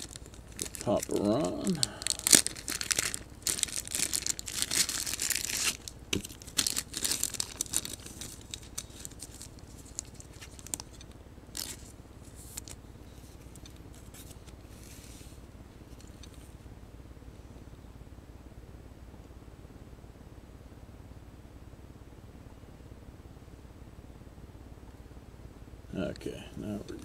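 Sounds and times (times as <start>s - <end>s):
wrapper tearing and crinkling: 0.0s - 12.8s
cards rustling and sliding: 4.0s - 15.4s.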